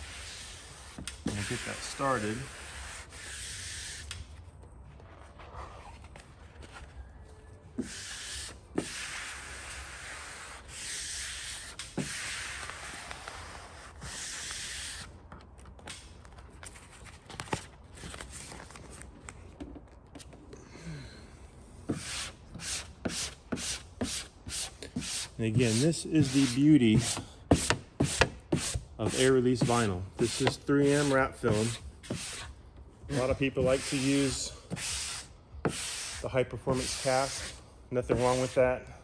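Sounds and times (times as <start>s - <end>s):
squeegee scraping vinyl: 0.0s - 4.2s, 7.8s - 15.7s, 21.9s - 38.8s.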